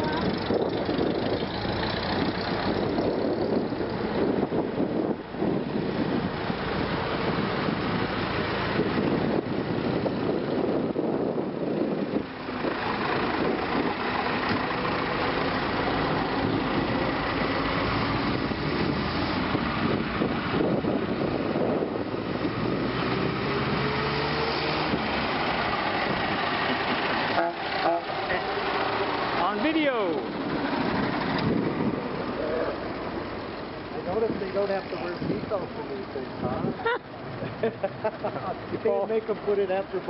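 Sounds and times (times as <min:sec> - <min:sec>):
car engine running: 0:00.0 - 0:18.8.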